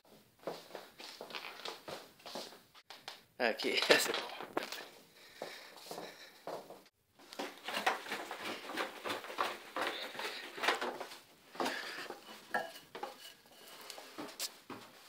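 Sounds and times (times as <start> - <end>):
hard objects clattering and clinking: 7.4 - 14.5.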